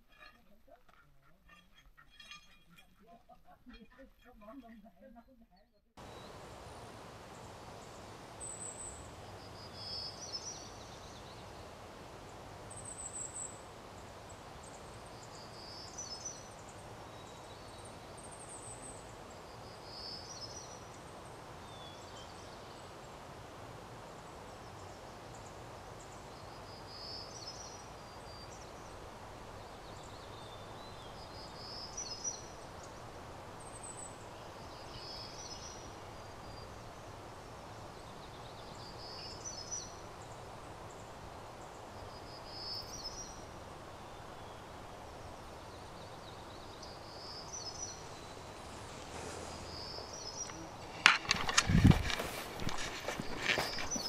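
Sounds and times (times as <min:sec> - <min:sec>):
steady background hiss: 0:06.0 - 0:54.0
small birds chirping: 0:24.1 - 0:54.0.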